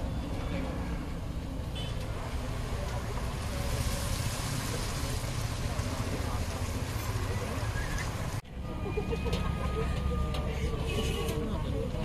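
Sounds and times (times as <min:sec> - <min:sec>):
oil sizzling and bubbling: 0:02.2 - 0:08.4.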